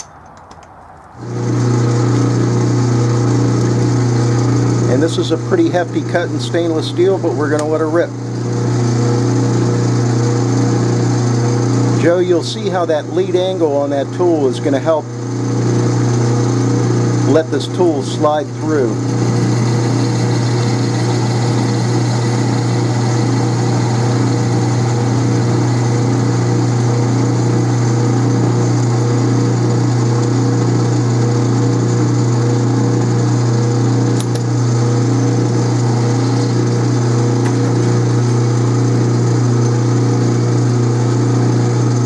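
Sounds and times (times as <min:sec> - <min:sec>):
low motor hum: 0:01.1 - 0:42.0
lathe cutting steel: 0:16.9 - 0:33.0, 0:33.7 - 0:39.6.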